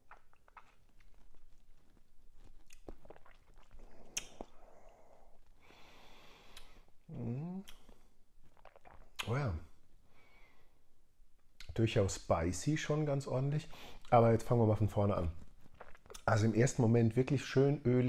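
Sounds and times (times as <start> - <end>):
wet mouth smacks and clicks: 0.0 - 4.7, 7.6 - 9.4, 15.6 - 16.3
breath out: 4.1 - 6.9
person humming mm: 7.1 - 7.8.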